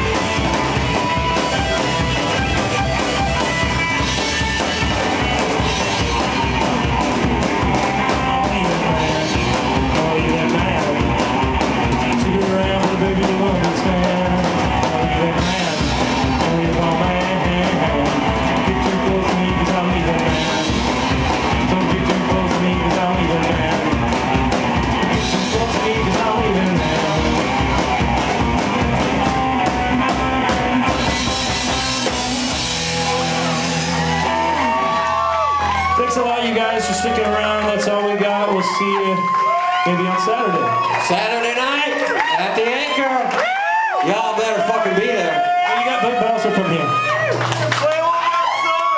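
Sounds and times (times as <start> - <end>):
electric guitar: 0.0 - 41.1
upright bass: 0.0 - 43.4
drum kit: 0.0 - 48.9
man singing: 7.6 - 27.8, 29.0 - 35.0, 35.9 - 40.6.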